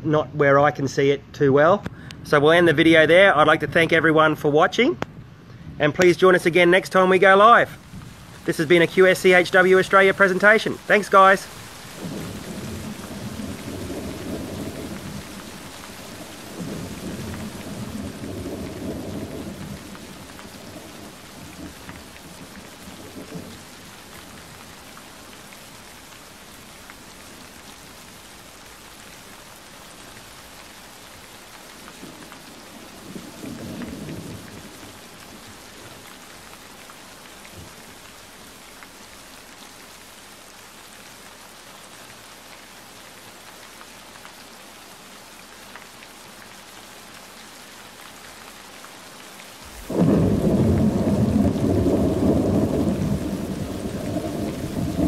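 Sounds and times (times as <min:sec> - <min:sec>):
steady rain hiss: 0:00.0 - 0:55.0
low thunder rumbles: 0:07.8 - 0:24.6, 0:32.0 - 0:36.0, 0:49.7 - 0:55.0.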